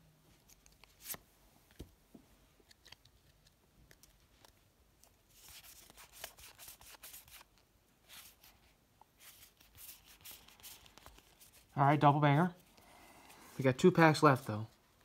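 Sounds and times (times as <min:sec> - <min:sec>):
trading cards rustling: 0:00.3 - 0:01.8, 0:02.6 - 0:15.0.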